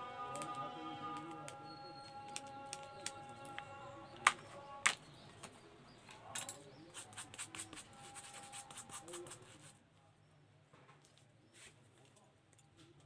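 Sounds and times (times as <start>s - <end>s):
faint steady tones: 0.0s - 6.9s
sharp clicks: 0.4s - 5.5s.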